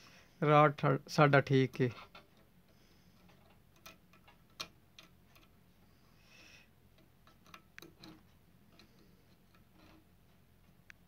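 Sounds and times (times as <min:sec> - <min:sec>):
test probes clicking on terminals: 0:01.7 - 0:05.6, 0:06.6 - 0:11.0.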